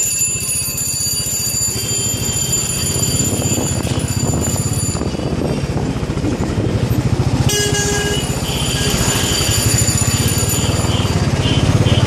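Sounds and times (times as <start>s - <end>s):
high-pitched ringing tone: 0.0s - 5.4s, 7.9s - 11.2s
motorbike engine running: 0.0s - 12.0s.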